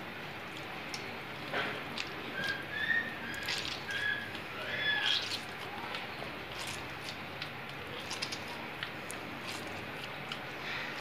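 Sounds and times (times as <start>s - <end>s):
hands squeezing wet curd in water: 0.0s - 11.0s
short splashes and squelches: 3.2s - 10.0s.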